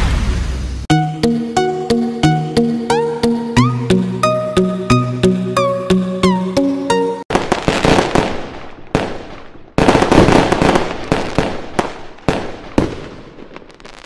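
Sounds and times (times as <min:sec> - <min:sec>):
fireworks bangs and crackling: 0:07.3 - 0:14.0
sharp firework cracks: 0:07.3 - 0:14.0.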